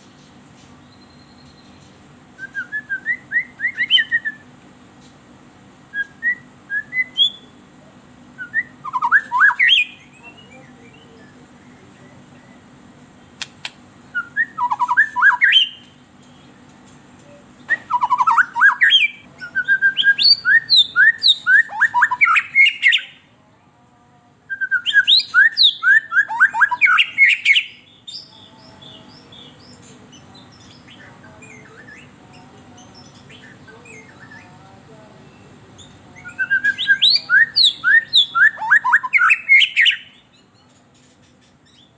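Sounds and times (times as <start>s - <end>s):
bird singing whistled notes: 0.8s - 1.8s, 2.4s - 4.5s, 5.9s - 7.6s, 8.4s - 12.7s, 14.1s - 16.0s, 17.6s - 23.2s, 24.5s - 29.8s, 35.3s - 40.6s.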